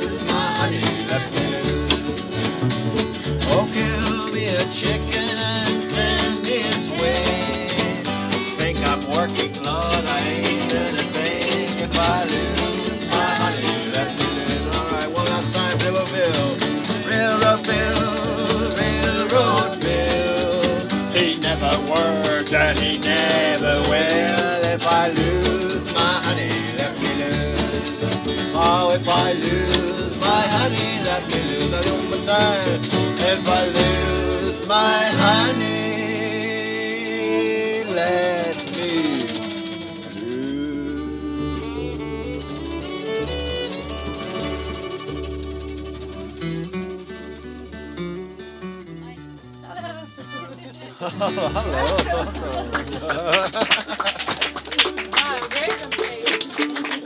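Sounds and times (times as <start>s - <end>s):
man singing: 0.0s - 2.4s, 3.2s - 42.8s
pizza box played as drum: 0.0s - 40.7s
strummed acoustic guitars: 0.0s - 57.0s
upright double bass: 0.0s - 57.0s.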